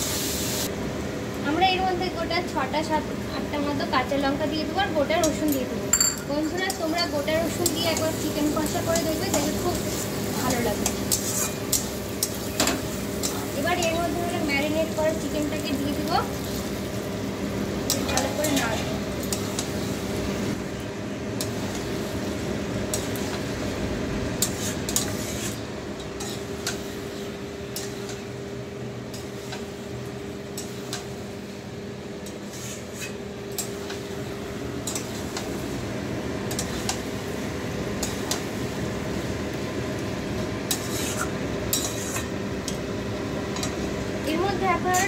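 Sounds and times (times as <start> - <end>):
steady low hum: 0.6 - 45.0
spatula scraping metal pan: 11.1 - 11.6, 40.7 - 42.3.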